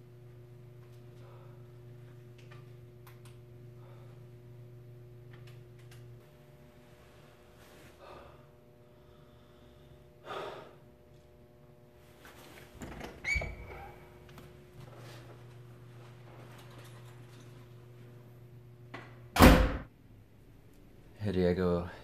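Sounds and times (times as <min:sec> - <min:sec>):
low steady hum: 0:00.0 - 0:22.0
man breathing heavily: 0:01.1 - 0:02.1, 0:03.6 - 0:04.6, 0:07.5 - 0:11.0.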